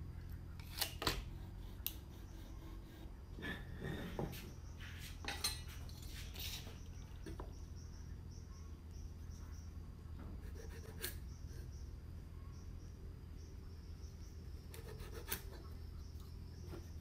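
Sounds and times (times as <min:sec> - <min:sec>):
low steady hum: 0:00.0 - 0:17.0
faint high chirp: 0:04.5 - 0:14.9.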